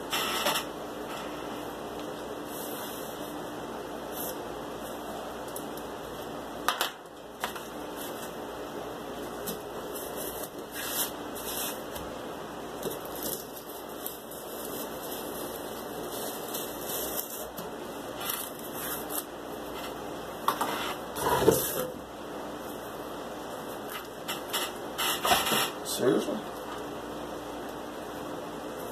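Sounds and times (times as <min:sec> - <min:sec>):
scraping and rubbing on cardboard: 0:09.9 - 0:11.9.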